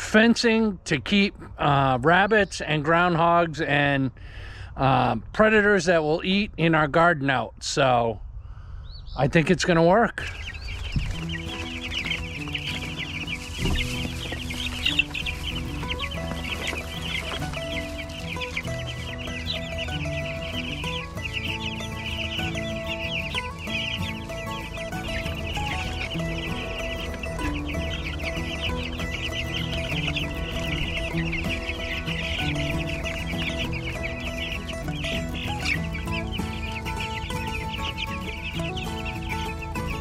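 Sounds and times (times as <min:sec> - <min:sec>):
chicks peeping: 0:08.7 - 0:40.0
background music with held notes: 0:10.9 - 0:40.0.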